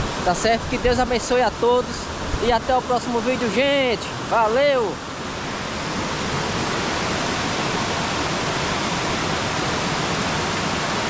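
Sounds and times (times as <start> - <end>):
water rushing over rocks: 0.0 - 11.0.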